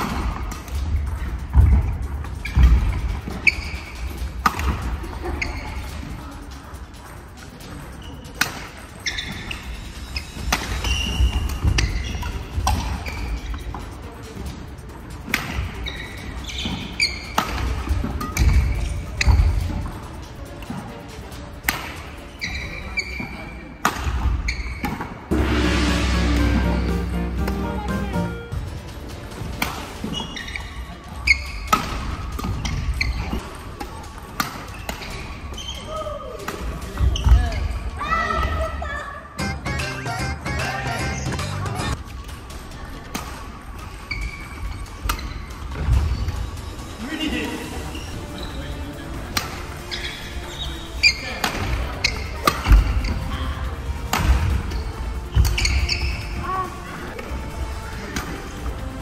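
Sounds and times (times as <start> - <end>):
background music: 0.0 - 23.0, 23.6 - 59.0
shoes squeaking: 1.1 - 6.3, 7.0 - 14.5, 15.3 - 20.0, 21.7 - 25.2, 29.9 - 37.9, 43.9 - 46.6, 47.7 - 53.5, 54.1 - 57.4
shoes squeaking on wooden floor: 2.4 - 4.0, 9.0 - 13.9, 15.8 - 19.8, 22.3 - 23.5, 24.4 - 25.0, 30.0 - 31.7, 49.7 - 53.4, 54.7 - 56.4
racket hitting shuttlecock: 4.4 - 4.9, 8.4 - 8.8, 10.4 - 13.2, 15.3 - 15.7, 16.6 - 19.4, 21.7 - 22.0, 23.8 - 25.1, 34.4 - 35.2, 49.3 - 49.6, 52.4 - 52.9.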